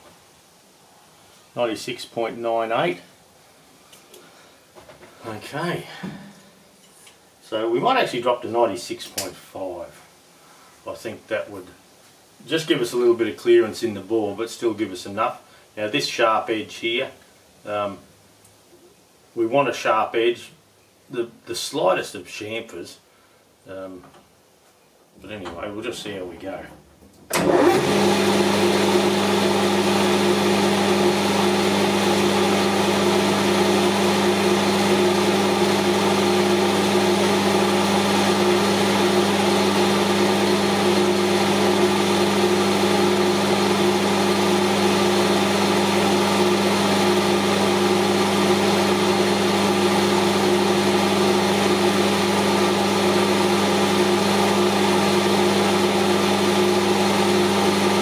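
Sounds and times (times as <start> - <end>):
metal lathe humming: 27.4 - 58.0.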